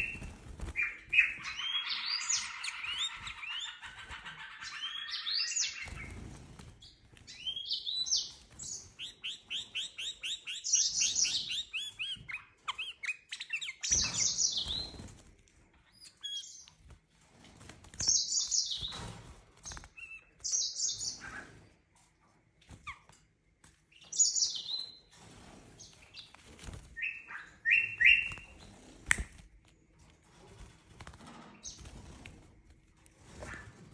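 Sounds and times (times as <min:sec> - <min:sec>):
bird calling in bright chirps: 0:00.8 - 0:06.2, 0:27.0 - 0:28.6.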